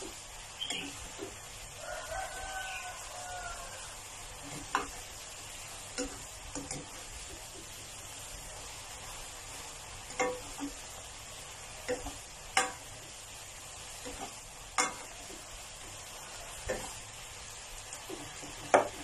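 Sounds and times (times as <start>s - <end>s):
chicken sizzling in a pan: 0.0s - 19.0s
spatula scraping a pan: 4.3s - 7.4s, 13.9s - 17.1s.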